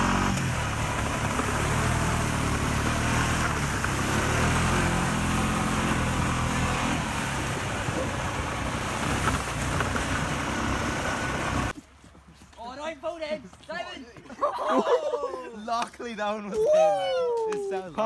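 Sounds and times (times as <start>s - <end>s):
tyres spraying water: 0.0s - 11.7s
vehicle engine running: 0.0s - 11.7s.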